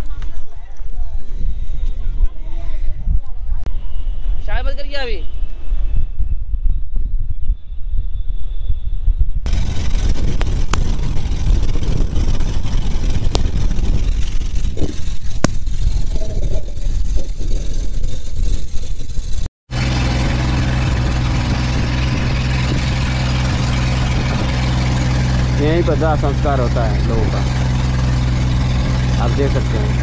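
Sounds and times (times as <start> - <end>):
wind rumbling on microphone: 0.0 - 30.0
motorboat engine running: 9.5 - 30.0.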